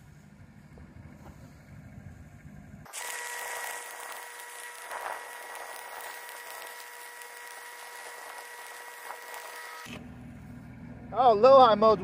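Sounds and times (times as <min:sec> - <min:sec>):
thin high whine: 0:02.8 - 0:10.1
welding arc crackle and hiss: 0:02.9 - 0:10.0.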